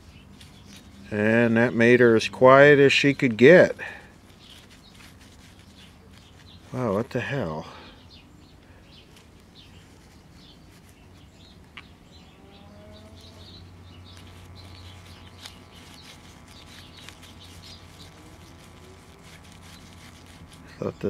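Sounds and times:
radio humming through speaker: 13.2 - 19.6.

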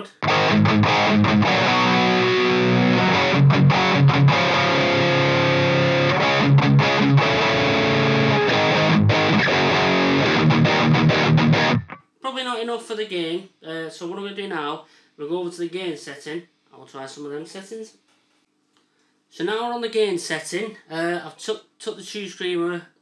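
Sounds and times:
distorted electric guitar riffs: 0.0 - 12.0.

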